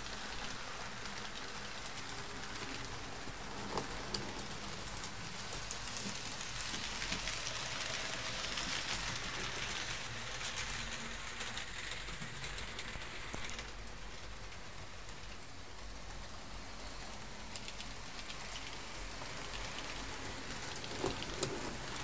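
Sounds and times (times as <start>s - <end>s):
model train wheels on rails: 0.0s - 22.0s.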